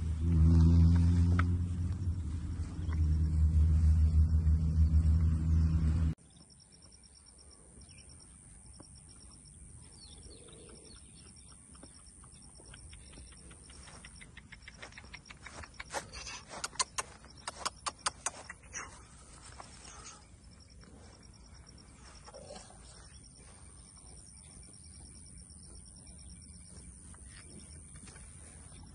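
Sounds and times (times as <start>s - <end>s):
loud low droning rumble: 0.0s - 6.2s
birds chirping: 2.0s - 28.9s.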